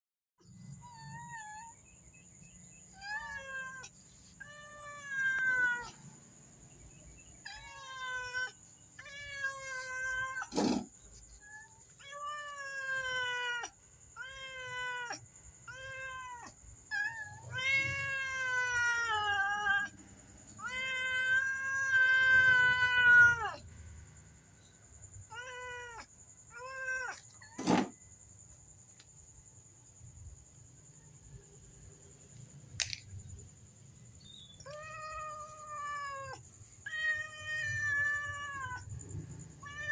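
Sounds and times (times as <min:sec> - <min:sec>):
cats meowing: 0:00.7 - 0:01.9, 0:02.8 - 0:06.2, 0:07.2 - 0:23.7, 0:25.2 - 0:27.9, 0:34.5 - 0:39.9
sharp click: 0:32.8 - 0:33.2.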